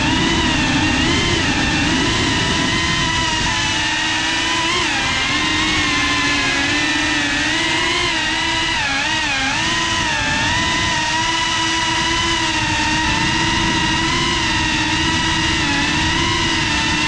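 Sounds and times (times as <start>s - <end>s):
quadcopter propellers whining: 0.0s - 17.0s.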